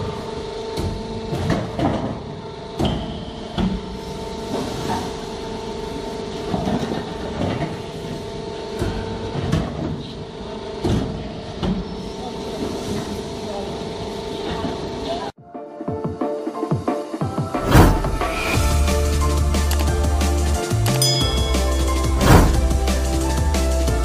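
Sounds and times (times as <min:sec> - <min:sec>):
roll-forming machine humming: 0:17.6 - 0:24.0
metallic clunks and thuds: 0:22.2 - 0:22.9.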